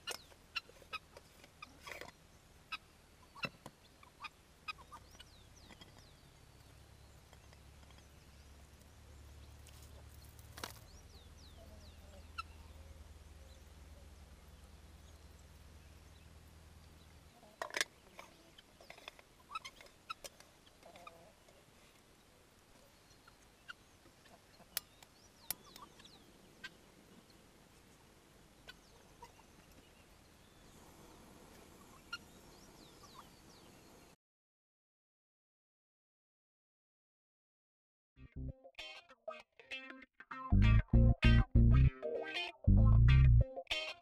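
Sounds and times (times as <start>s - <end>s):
low steady rumble: 40.6s - 41.9s, 42.7s - 43.4s.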